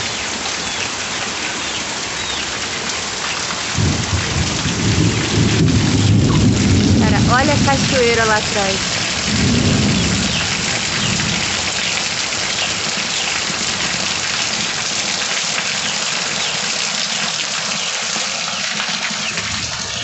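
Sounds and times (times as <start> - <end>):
heavy rain falling: 0.0 - 20.0
low thunder rumble: 3.8 - 11.8.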